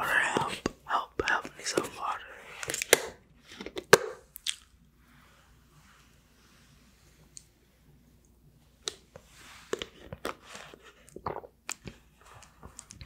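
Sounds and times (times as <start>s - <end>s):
wet mouth sounds: 4.3s - 4.7s.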